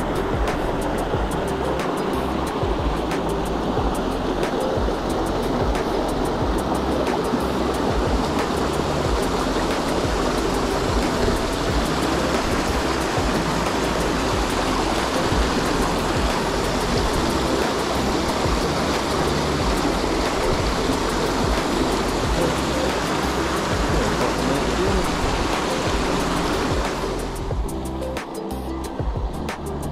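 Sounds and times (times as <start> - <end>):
waterfall rushing into pool: 0.0 - 29.9.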